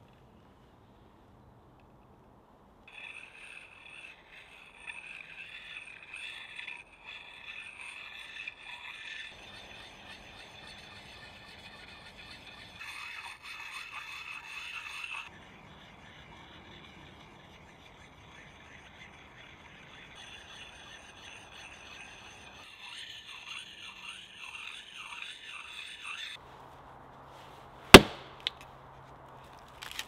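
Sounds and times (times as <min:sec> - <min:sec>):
whetstone scraping steel blade: 0:02.9 - 0:26.4.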